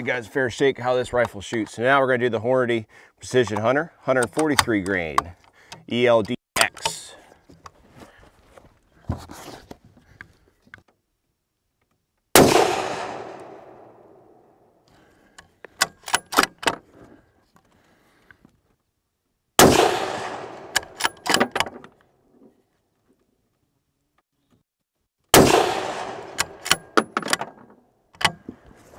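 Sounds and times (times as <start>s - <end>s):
rifle bolt metallic clicks: 3.4s - 7.1s, 15.3s - 16.8s, 19.7s - 22.0s, 25.4s - 28.5s
rifle shots with echo: 12.4s - 14.4s, 19.6s - 21.0s, 25.3s - 27.0s.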